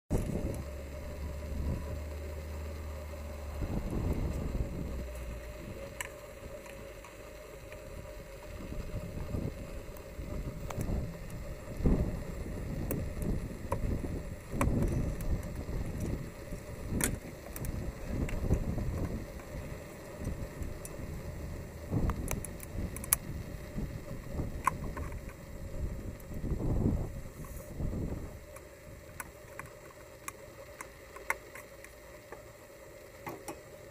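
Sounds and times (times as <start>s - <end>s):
wind buffeting microphone: 3.5s - 5.9s, 8.4s - 28.5s.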